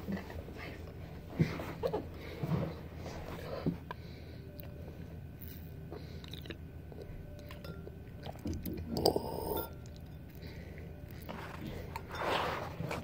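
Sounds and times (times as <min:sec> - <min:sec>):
mouth chewing noises: 0:06.2 - 0:07.5.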